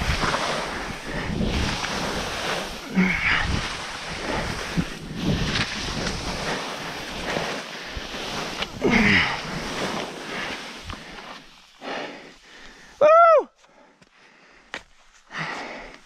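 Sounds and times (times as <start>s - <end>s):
wind rushing over microphone: 0.0s - 11.3s
skis scraping through snow: 0.0s - 13.0s.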